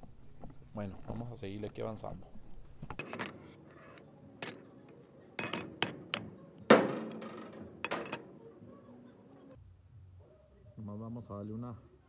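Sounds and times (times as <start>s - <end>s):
steel pieces clanking on metal: 2.9s - 8.5s.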